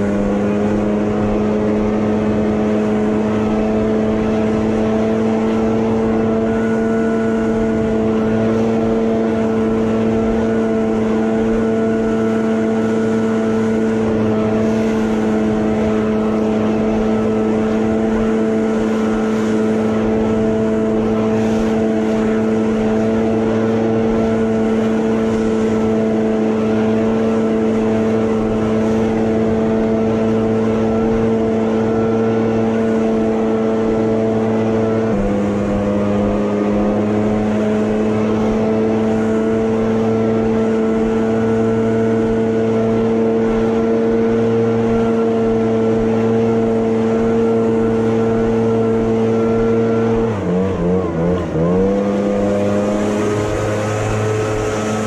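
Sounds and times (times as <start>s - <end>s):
leaf blower running: 0.0s - 55.0s.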